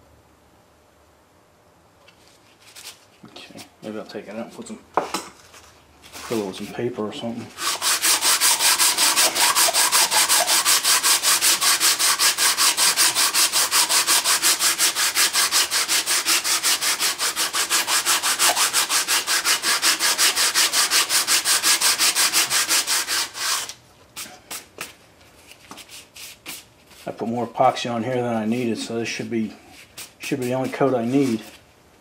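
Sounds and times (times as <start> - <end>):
sandpaper rasping on metal: 7.6 - 23.7, 29.8 - 31.6
light scrapes: 29.7 - 31.6.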